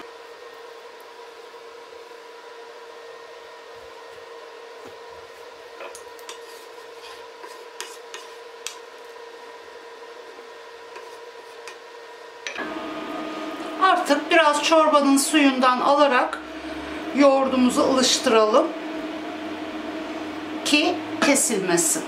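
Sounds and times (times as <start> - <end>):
wooden spoon stirring soup: 6.0 - 9.2, 10.9 - 11.9
steady hum: 9.4 - 22.0.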